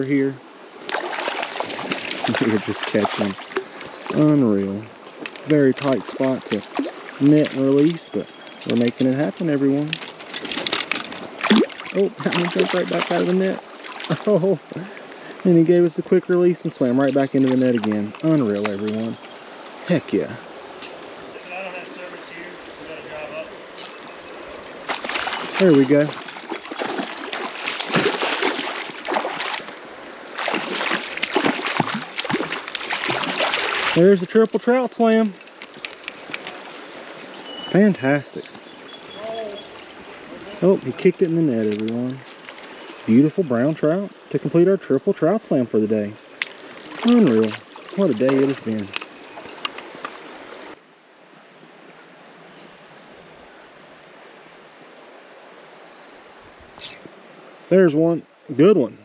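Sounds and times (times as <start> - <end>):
creek water flowing: 0.0 - 59.0
fish splashing at water surface: 0.8 - 4.1, 10.0 - 14.2, 24.8 - 34.0.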